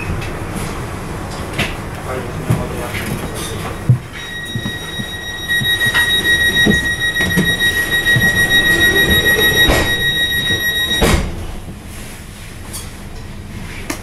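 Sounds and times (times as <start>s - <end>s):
high-pitched electronic warning tone: 3.7s - 11.3s.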